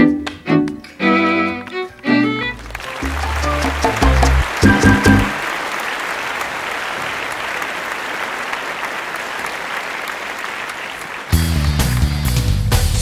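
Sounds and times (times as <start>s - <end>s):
low music notes: 0.0s - 5.4s
crowd applause: 1.2s - 13.0s.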